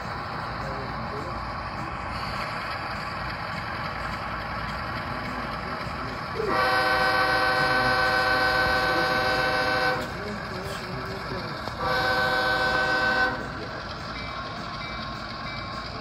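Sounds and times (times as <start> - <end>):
model locomotive horn chord: 6.4 - 10.2, 11.8 - 13.6.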